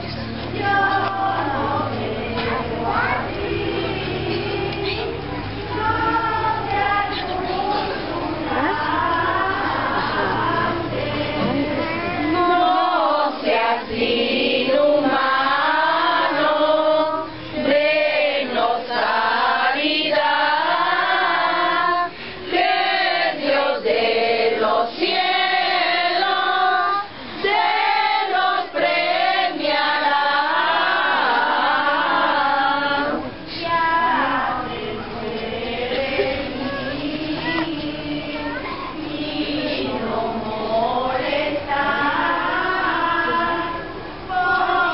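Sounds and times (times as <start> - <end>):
crowd singing a hymn: 0.0 - 44.9.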